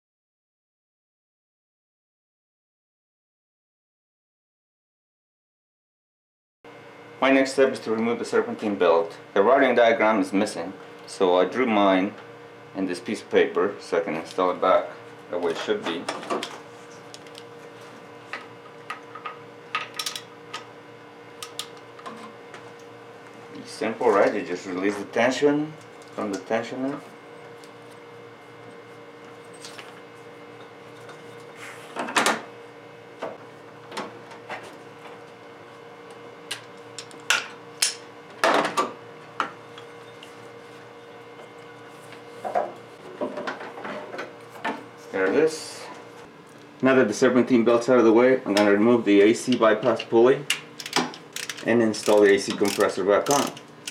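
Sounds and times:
hand tools clicking and knocking: 50.5 - 53.9.

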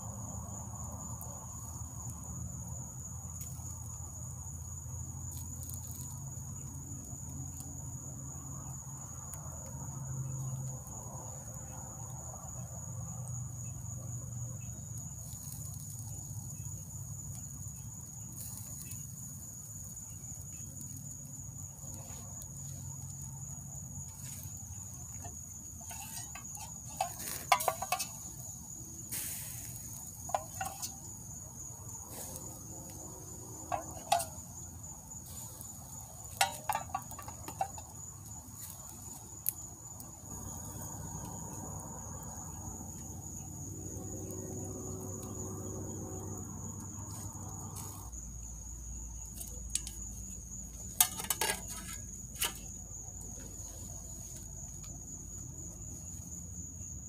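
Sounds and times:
insects trilling: 0.0 - 57.0
campfire crackling and popping: 24.0 - 29.1, 32.0 - 34.9, 35.5 - 42.3.

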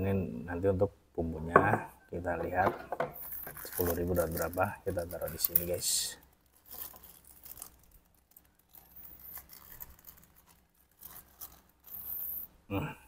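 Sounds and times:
plastic bag crinkling: 3.2 - 12.5.

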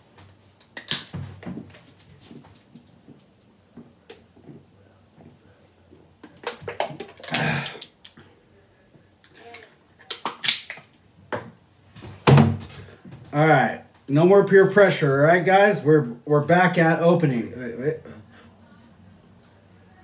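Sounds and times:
man gulping: 6.4 - 8.3
man gasping and exhaling: 7.2 - 8.3.

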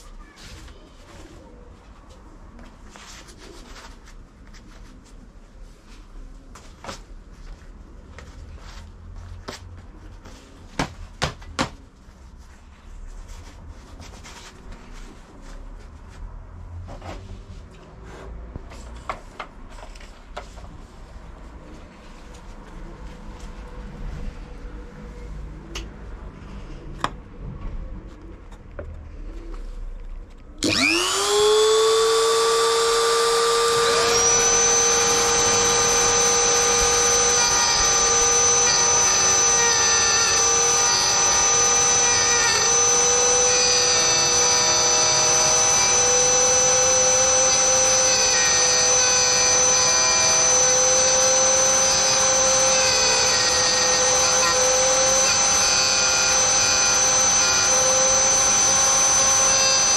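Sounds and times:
rotary tool high whine: 30.6 - 59.9.

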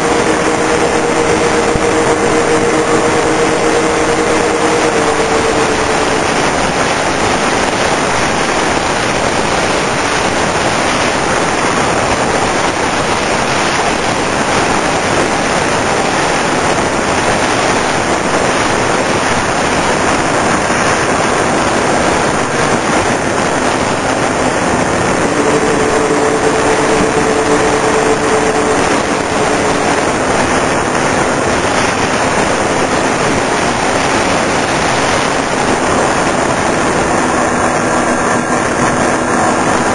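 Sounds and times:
electric motors humming: 0.0 - 7.4, 24.1 - 33.2
wind rushing over camera: 0.0 - 39.9.

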